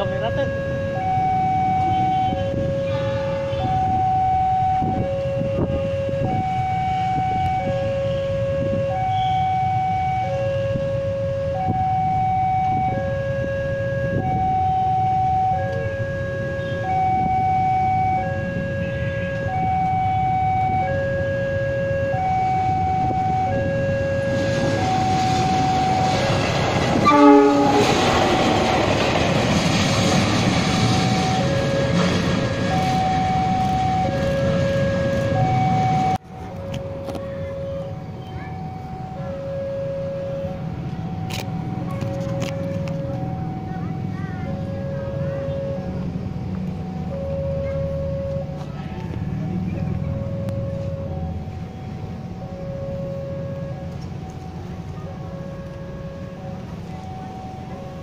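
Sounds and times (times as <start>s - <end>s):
diesel locomotive running: 0.0s - 58.0s
level crossing alarm tones: 0.0s - 58.0s
low rumble of train: 0.0s - 58.0s
train horn blast: 1.8s - 3.8s, 26.9s - 28.3s.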